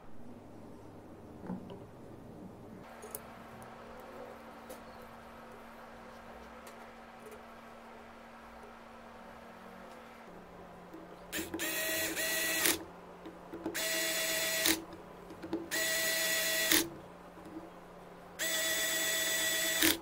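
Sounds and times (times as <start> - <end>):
electric screwdriver whine: 11.4 - 12.8, 13.8 - 14.8, 15.7 - 16.9, 18.4 - 20.0.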